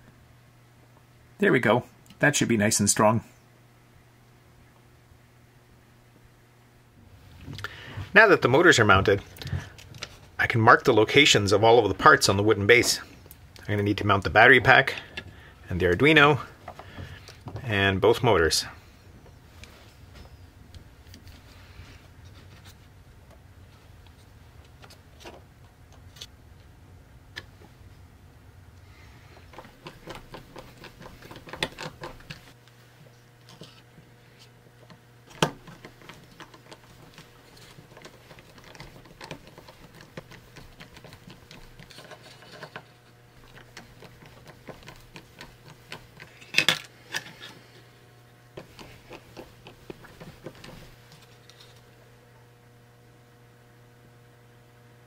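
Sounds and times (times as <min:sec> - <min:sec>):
clicks taps and scrapes: 0:29.3 - 0:32.6, 0:34.4 - 0:47.8, 0:48.6 - 0:51.9.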